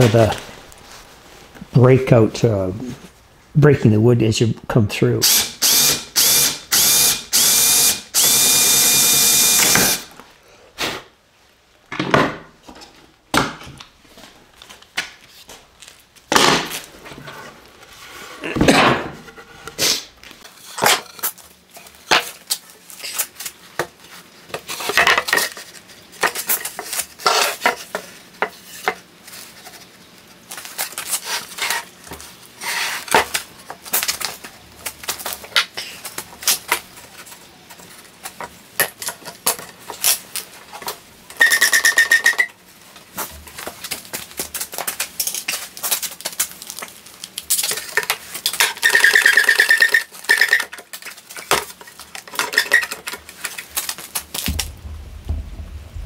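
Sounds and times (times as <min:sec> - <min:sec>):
cordless drill boring wood: 0:05.2 - 0:10.1
wooden board knocking and clattering: 0:54.4 - 0:56.0.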